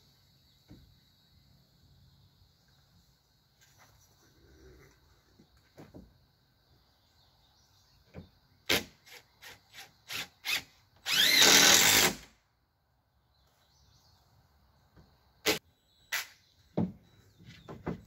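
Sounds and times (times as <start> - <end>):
cordless drill driving screw: 10.4 - 12.2.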